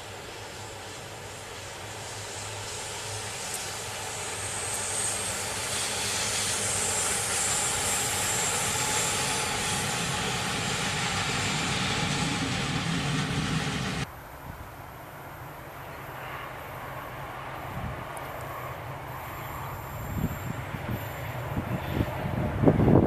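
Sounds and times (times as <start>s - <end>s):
train wheels on rails: 1.8s - 14.1s.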